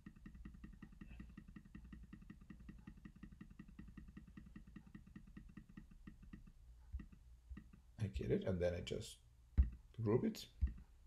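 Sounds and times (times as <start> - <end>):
faint fast ticking: 0.0 - 8.0.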